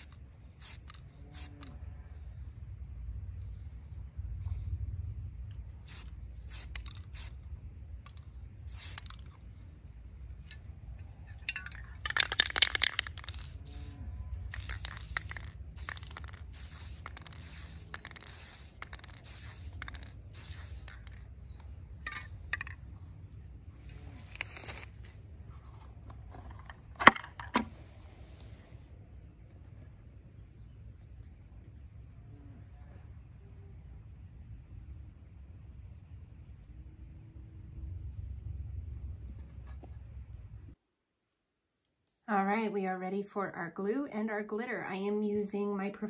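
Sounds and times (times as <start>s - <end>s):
aerosol spray can hissing: 0.0s - 1.7s, 5.8s - 7.4s, 8.1s - 9.3s, 12.5s - 22.7s.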